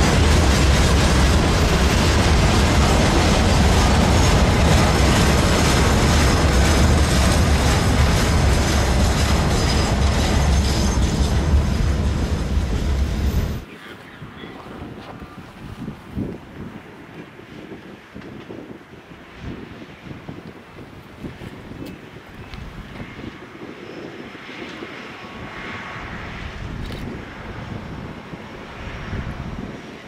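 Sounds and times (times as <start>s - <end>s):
train wheels rolling on track: 0.0s - 13.7s.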